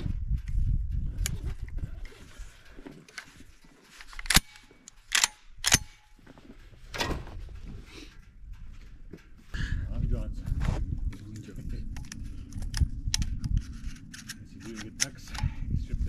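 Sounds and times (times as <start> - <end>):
sharp cracks: 4.0 - 6.2.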